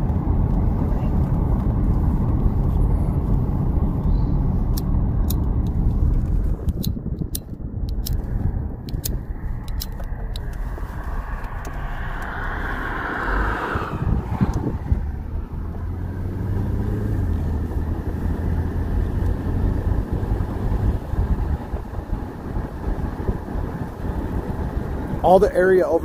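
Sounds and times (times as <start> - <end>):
road and wind noise in car: 0.0 - 26.0
car passing: 8.2 - 22.4.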